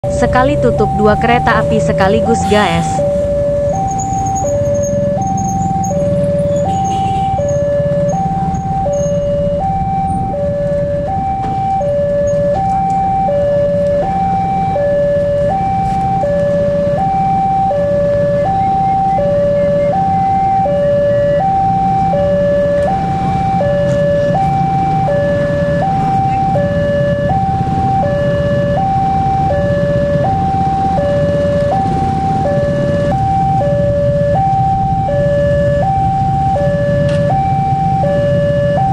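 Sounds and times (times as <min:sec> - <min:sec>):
two-tone level-crossing alarm: 0:00.0 - 0:38.9.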